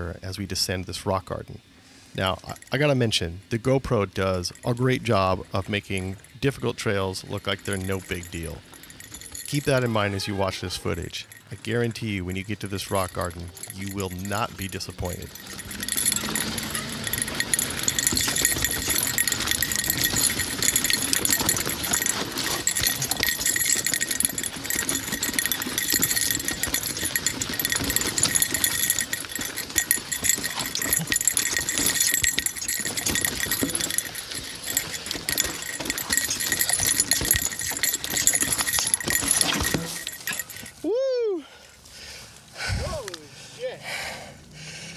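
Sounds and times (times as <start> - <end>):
mountain bike rattling over rocks: 4.0 - 10.2, 10.8 - 40.8.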